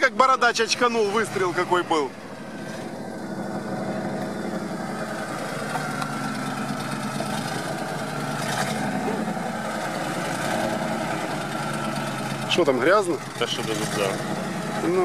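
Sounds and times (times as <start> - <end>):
truck engine running under load: 0.0 - 15.0.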